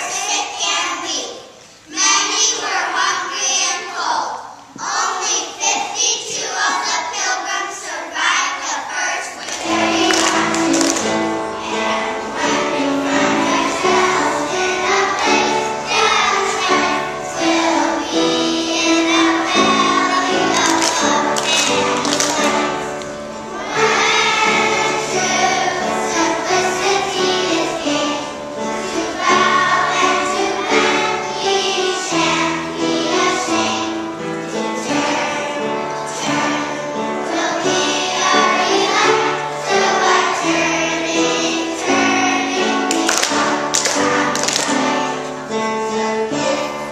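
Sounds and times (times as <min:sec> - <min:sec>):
children singing: 0:01.9 - 0:46.9
instrumental accompaniment: 0:09.4 - 0:46.9.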